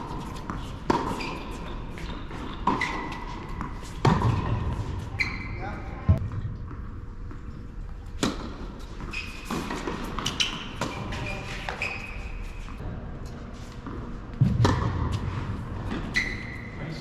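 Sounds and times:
tennis balls struck and bouncing: 0.0s - 4.8s, 6.1s - 11.8s, 13.8s - 15.3s
shoes squeaking on court: 0.0s - 6.2s, 8.8s - 12.8s, 15.8s - 16.9s.

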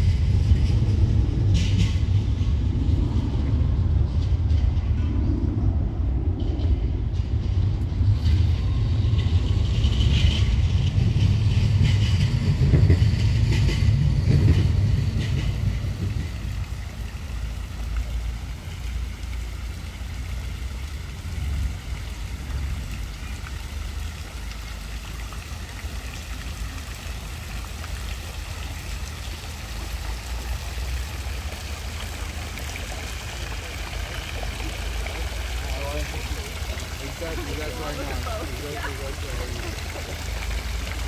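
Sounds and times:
low rumble: 0.0s - 24.6s.

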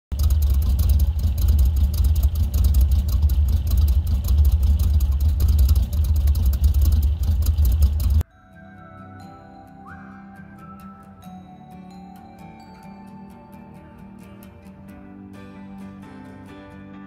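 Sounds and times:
truck engine idling: 0.1s - 8.2s.

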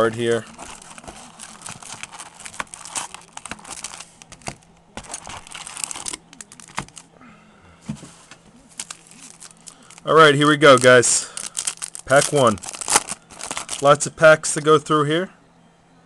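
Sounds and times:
foil packs crinkling: 0.0s - 7.1s, 8.7s - 14.7s.

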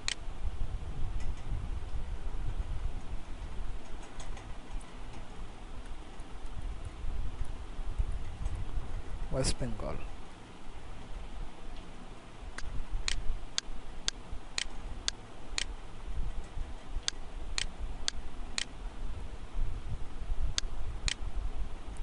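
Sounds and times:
sharp clicks: 12.6s - 15.7s, 17.0s - 18.7s.

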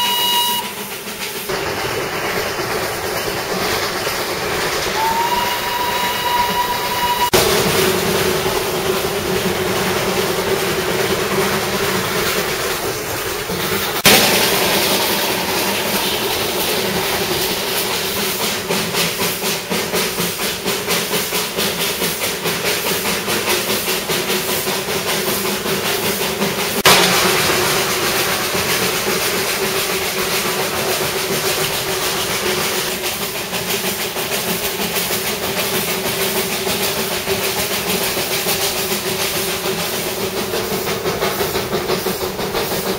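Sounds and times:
steam locomotive exhaust beat: 0.0s - 42.9s
wheels running on rails: 0.0s - 42.9s
hiss of escaping steam: 11.1s - 42.9s.

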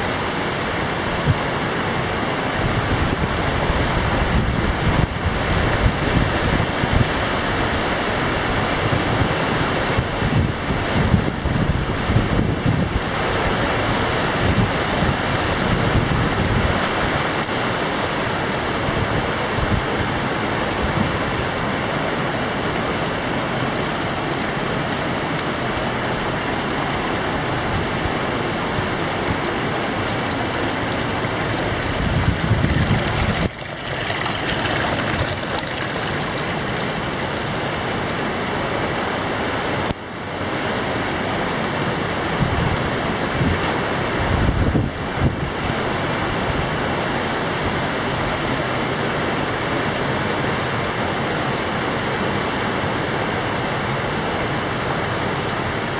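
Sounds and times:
river rushing over rocks: 0.0s - 55.9s.

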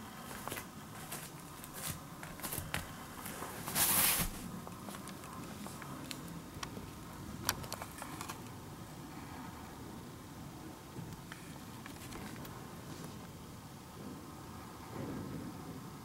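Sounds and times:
footsteps: 0.0s - 6.0s.

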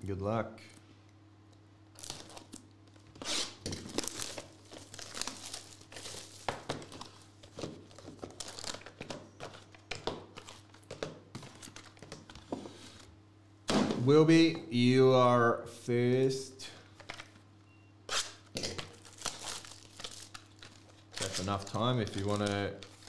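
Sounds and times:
shrink wrap crinkling and tearing: 1.9s - 9.8s, 18.2s - 23.0s.

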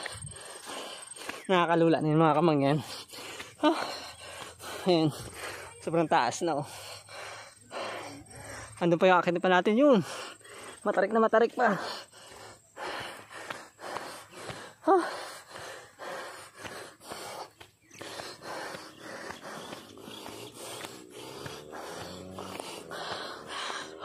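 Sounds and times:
person panting: 0.0s - 24.0s
person gasping: 2.7s - 5.8s, 11.7s - 24.0s.

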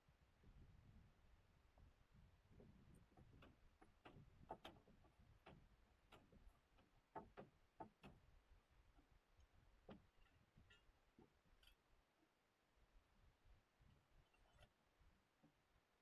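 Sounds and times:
faint clicks and light knocks: 2.5s - 12.3s.

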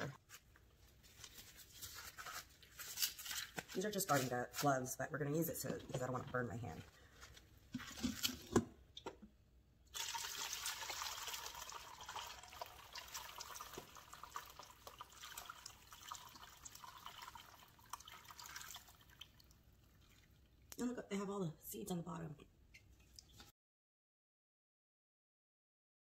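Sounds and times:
broth pouring through strainer: 9.9s - 20.5s.

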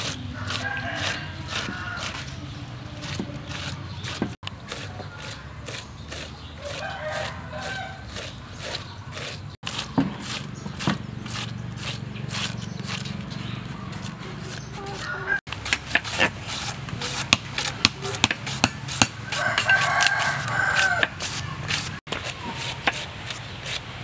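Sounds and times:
cabbage being shredded: 0.0s - 23.8s
rooster crowing: 0.3s - 2.3s, 6.6s - 8.1s, 14.9s - 15.4s, 19.2s - 21.2s.

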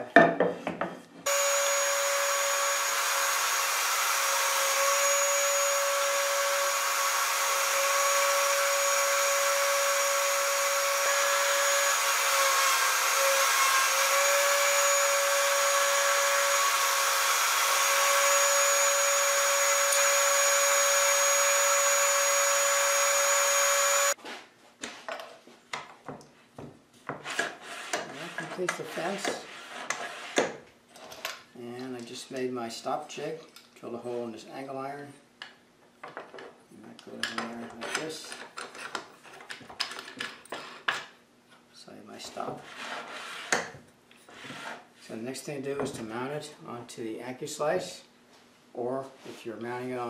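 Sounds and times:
router whining: 1.3s - 24.2s.

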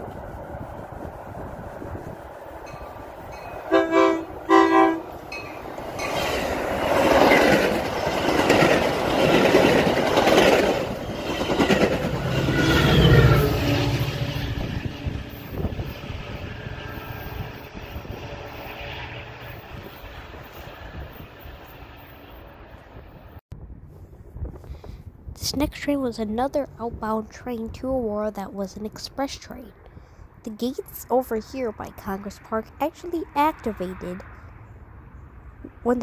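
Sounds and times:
diesel locomotive engine: 0.0s - 36.0s
train horn blasts: 3.7s - 5.2s
train cars clattering on rails: 5.2s - 13.1s.

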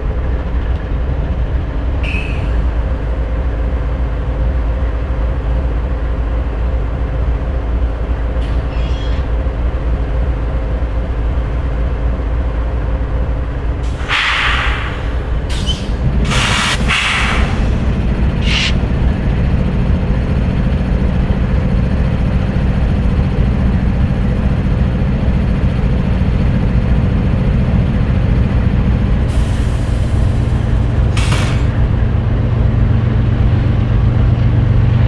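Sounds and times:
diesel locomotive idling: 0.0s - 35.0s
air hissing: 13.8s - 18.8s.

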